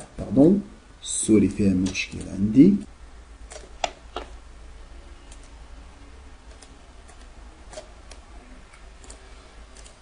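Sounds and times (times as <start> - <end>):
faint low hum: 0.0 - 10.0
computer mouse clicking: 5.3 - 5.6, 6.5 - 10.0.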